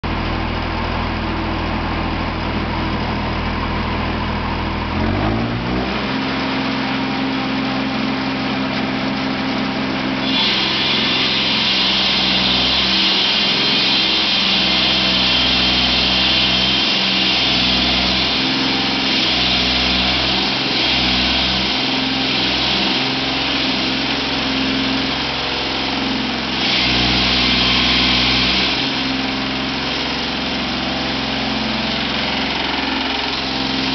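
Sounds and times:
floor saw engine running: 0.0s - 33.9s
saw blade cutting floor hiss: 10.2s - 25.2s.

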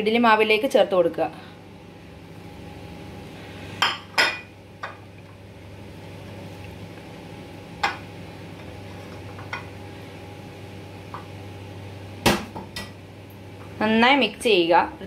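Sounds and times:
steady low hum: 0.0s - 15.0s
dishes clinking: 3.8s - 5.0s.

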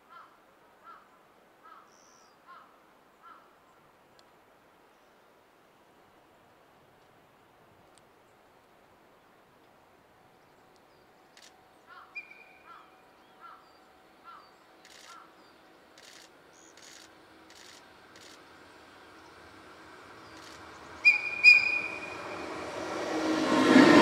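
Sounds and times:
bird calling: 11.9s - 13.7s, 14.3s - 18.4s, 19.0s - 22.8s
low hum: 14.5s - 24.0s.

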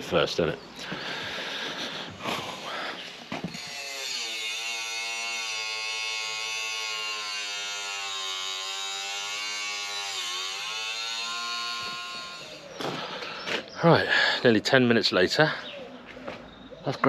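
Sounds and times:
angle grinder grinding metal: 1.7s - 13.5s.

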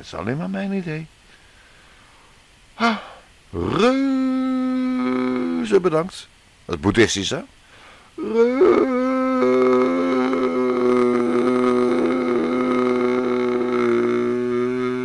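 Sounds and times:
man chanting droning tone: 8.2s - 15.0s.

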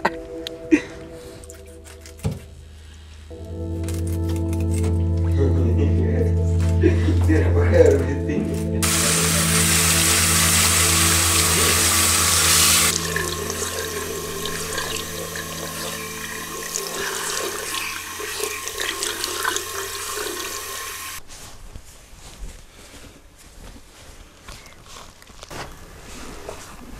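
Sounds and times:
sink tap running: 8.8s - 21.2s.

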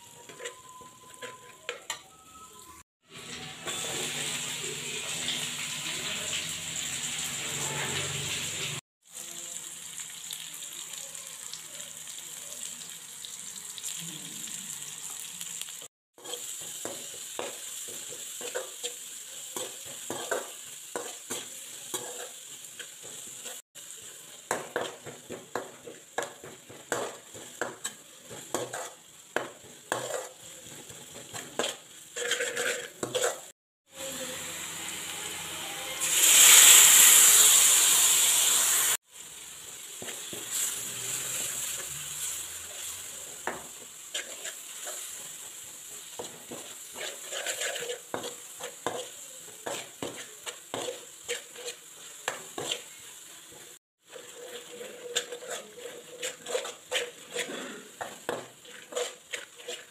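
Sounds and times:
onions sizzling in oil: 0.0s - 1.9s, 3.0s - 59.9s
spoon scraping a pan: 0.1s - 2.1s, 16.2s - 33.5s, 40.0s - 59.9s.

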